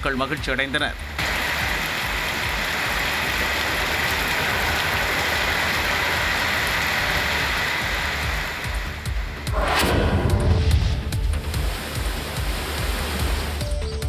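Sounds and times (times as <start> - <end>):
heavy rain on wet road: 0.0 - 9.5, 11.1 - 13.8
low rumble: 8.2 - 13.5.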